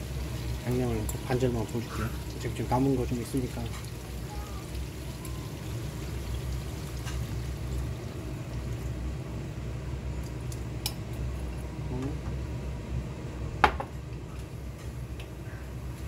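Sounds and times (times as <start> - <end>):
steady low hum: 3.9 - 16.0.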